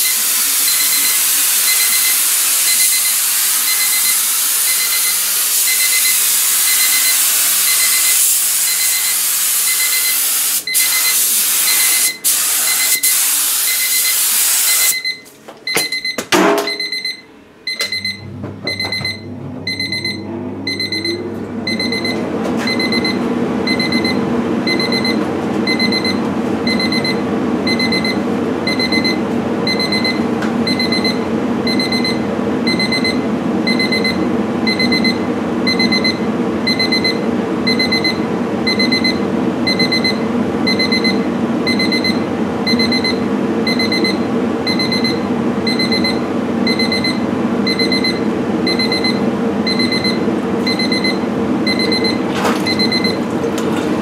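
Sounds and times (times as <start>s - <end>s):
electronic alarm beeping: 0.0s - 53.2s
steady low hum: 15.0s - 54.0s.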